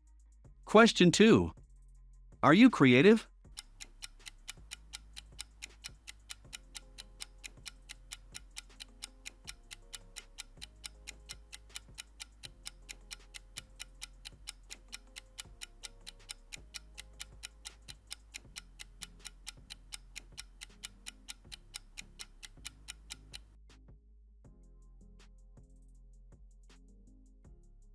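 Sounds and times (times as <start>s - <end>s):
soft background music: 0.0s - 27.9s
clock ticking: 3.5s - 23.6s.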